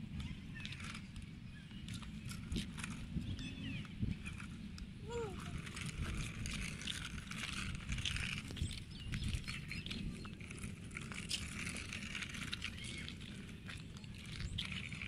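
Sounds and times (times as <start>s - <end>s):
toy car wheels crackling on gravel: 0.0s - 15.0s.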